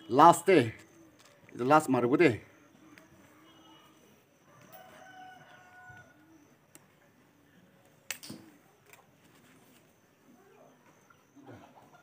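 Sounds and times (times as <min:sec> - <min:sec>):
rooster crowing faintly: 0:04.4 - 0:06.5.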